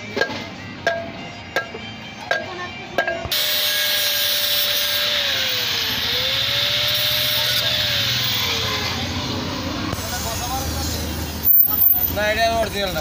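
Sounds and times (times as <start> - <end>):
angle grinder cutting metal: 3.3 - 9.4.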